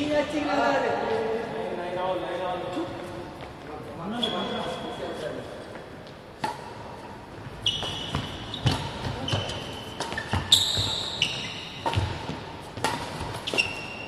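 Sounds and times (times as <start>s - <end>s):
rackets striking shuttlecock: 7.7s - 14.0s.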